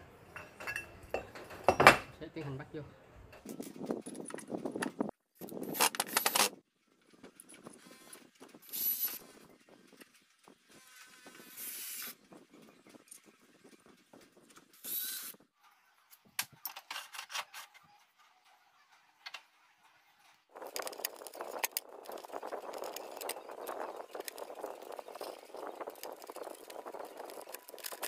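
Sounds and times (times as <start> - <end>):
electric drill driving screws: 11.0 - 12.2.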